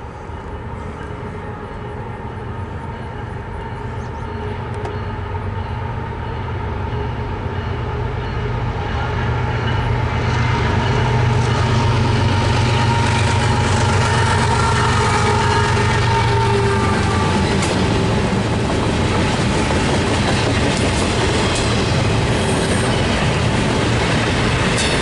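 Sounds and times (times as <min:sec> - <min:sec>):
diesel locomotive engine drone: 0:00.0 - 0:25.0.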